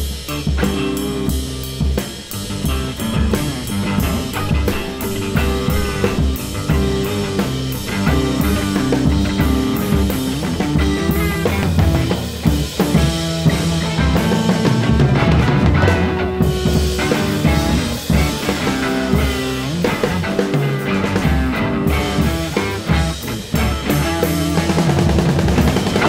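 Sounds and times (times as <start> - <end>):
drum kit playing rock: 0.0 - 26.0
electric guitar with effects: 0.0 - 26.0.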